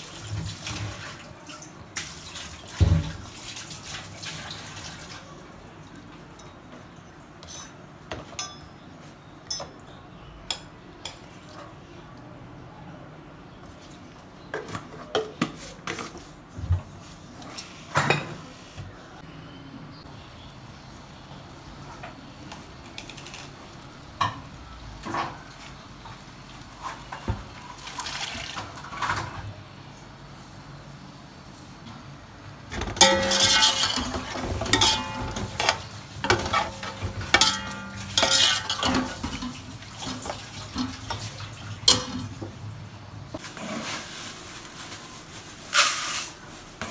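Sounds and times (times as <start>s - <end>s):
kitchen utensils clinking: 7.4s - 8.8s, 9.4s - 11.6s, 17.5s - 18.6s, 32.7s - 42.6s
metal spatula scraping metal pot: 33.0s - 40.9s.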